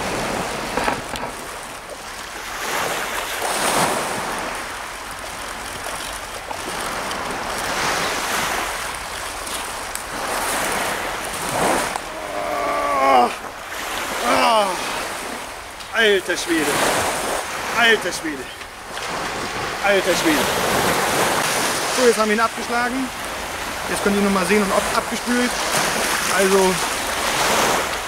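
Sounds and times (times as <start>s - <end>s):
surf breaking on beach: 0.0s - 28.0s
person calling out: 12.0s - 13.5s, 14.2s - 15.0s.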